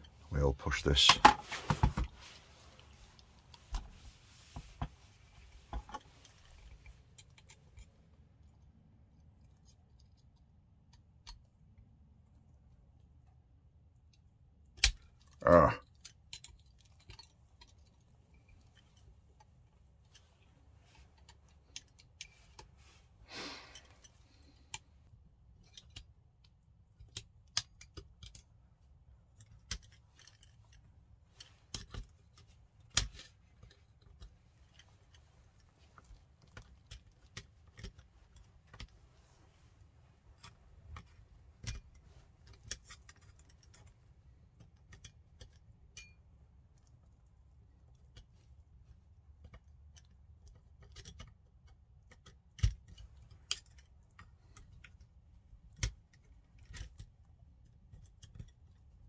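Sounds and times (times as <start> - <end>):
screwdriver and small parts clicking: 25.5 - 39.0, 40.3 - 46.2, 49.4 - 59.0.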